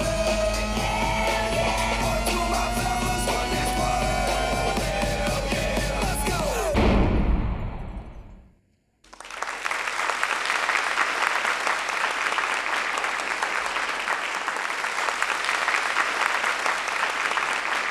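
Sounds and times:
dance music: 0.0s - 6.9s
audience applauding: 9.0s - 17.9s.

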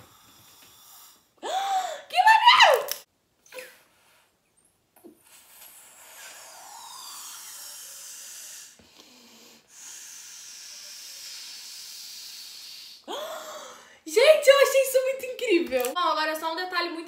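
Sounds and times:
air blown through straw hissing: 5.2s - 13.1s.

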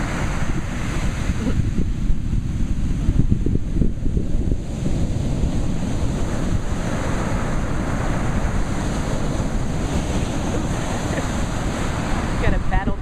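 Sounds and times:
ocean surf breaking: 0.0s - 13.0s
wind buffeting microphone: 0.0s - 13.0s.

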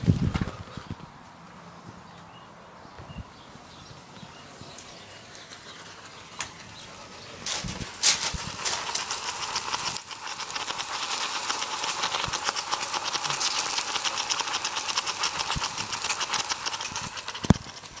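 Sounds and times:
smoke bomb residue crackling: 7.1s - 17.8s.

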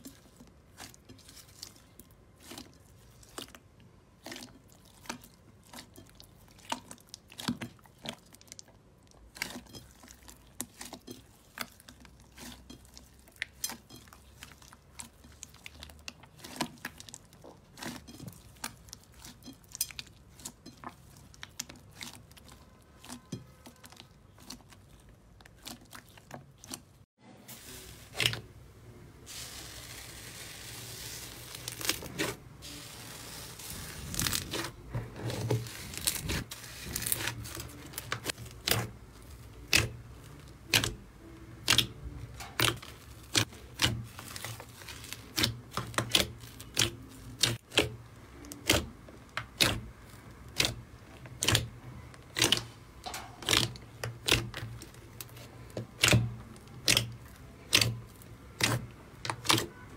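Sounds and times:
slime hissing crackle: 29.3s - 34.7s.

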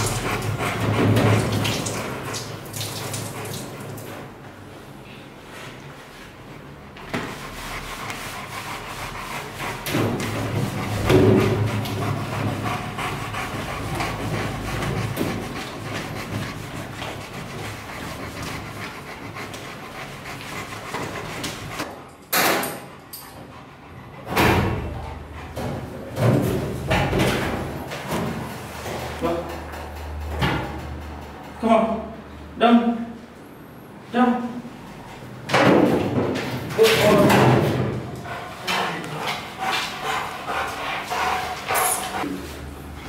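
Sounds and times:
metal door knocks and clanks: 10.9s - 11.8s.

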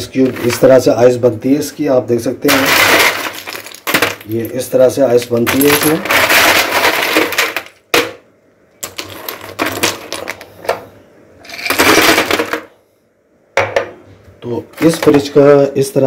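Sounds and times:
ice cubes clattering: 2.5s - 4.4s, 5.4s - 7.8s, 11.5s - 12.7s.

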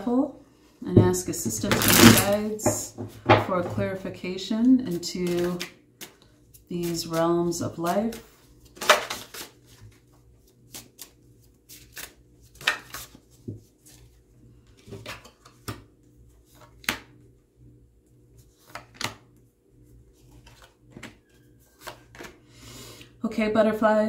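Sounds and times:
cards being shuffled: 1.6s - 2.4s, 4.9s - 17.2s, 18.4s - 19.3s, 20.1s - 22.4s.

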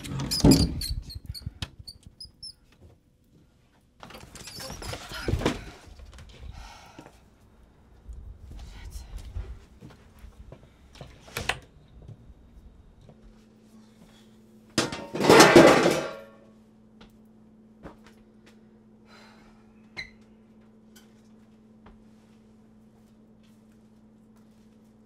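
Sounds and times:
cookware clattering: 14.8s - 16.3s
pan and utensils clinking: 14.8s - 16.4s.

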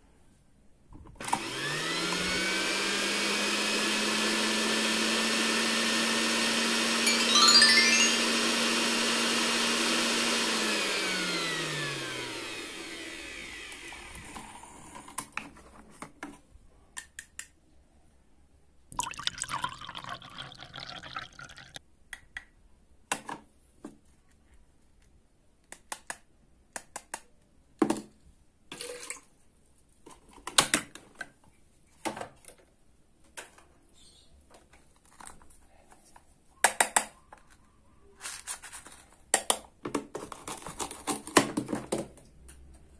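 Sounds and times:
toy mixer whirring: 1.2s - 15.2s
liquid pouring into a cup: 19.0s - 21.8s.

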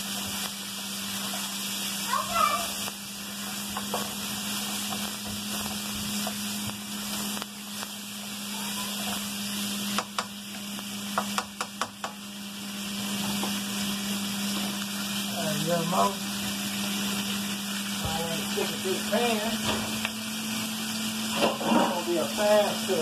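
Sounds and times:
potatoes and bacon sizzling: 0.0s - 23.0s
spatula scraping a pan: 21.2s - 22.3s.

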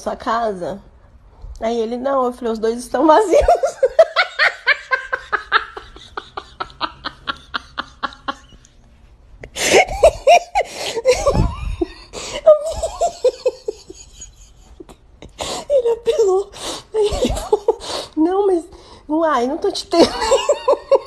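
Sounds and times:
person laughing hard: 3.3s - 8.7s, 9.4s - 15.8s, 17.0s - 18.0s, 20.0s - 21.0s.

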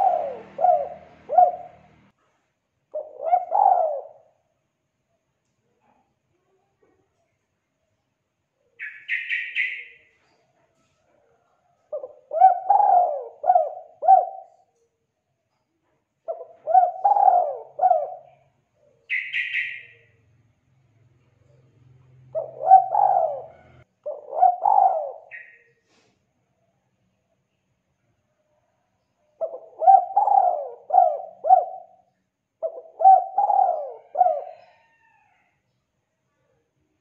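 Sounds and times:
dove cooing: 0.0s - 2.1s, 2.9s - 4.4s, 11.9s - 14.7s, 16.3s - 19.9s, 22.3s - 25.6s, 29.4s - 35.1s.

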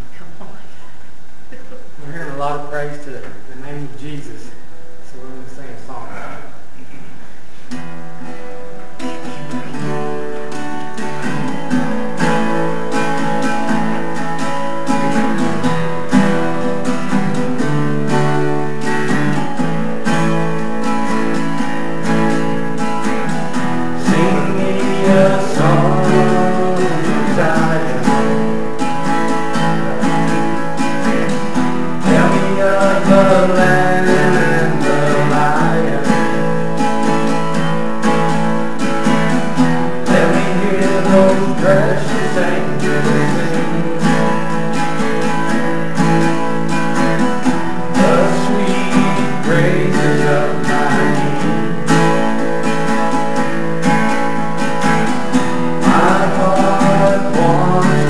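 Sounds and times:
acoustic guitars strumming: 0.0s - 58.0s.

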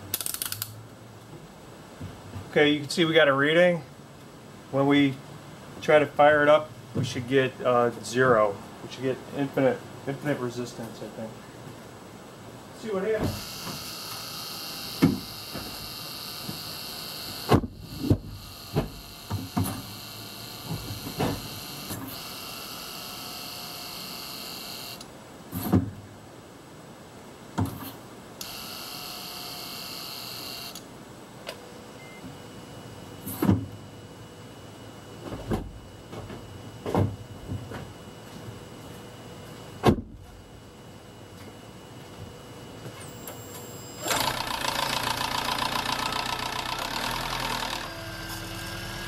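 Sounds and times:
engine cranking whir: 43.8s - 49.0s.

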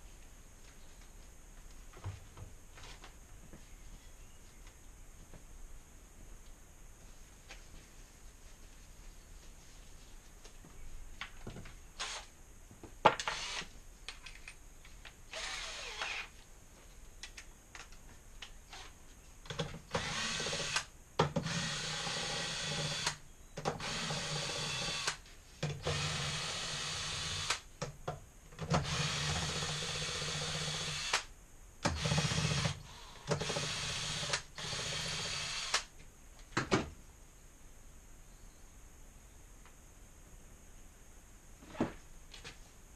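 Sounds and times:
cordless drill drilling: 12.0s - 12.3s, 13.2s - 13.7s, 15.3s - 16.3s, 19.9s - 23.2s, 23.8s - 25.2s, 25.8s - 27.6s, 28.8s - 31.3s, 31.9s - 35.9s.

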